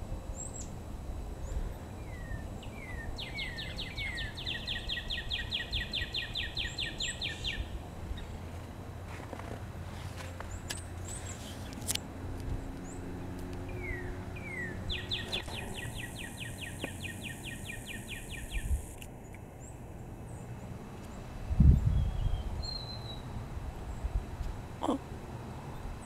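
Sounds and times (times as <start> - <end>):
songbirds chirping: 0.2 - 24.2
bird singing an even trill: 0.3 - 0.8, 1.4 - 8.5, 13.7 - 20.5, 21.7 - 23.3.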